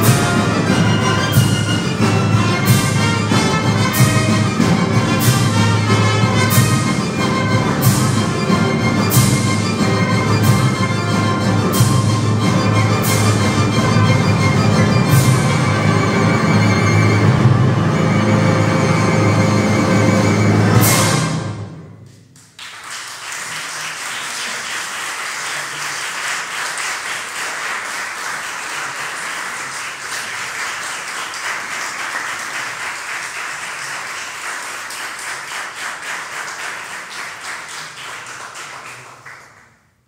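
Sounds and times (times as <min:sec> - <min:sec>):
audience applause: 0:22.4 - 0:39.8.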